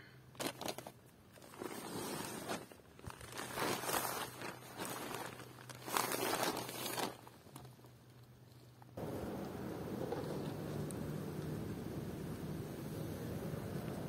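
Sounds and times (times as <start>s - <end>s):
tent nylon rustling: 0.4s - 8.8s.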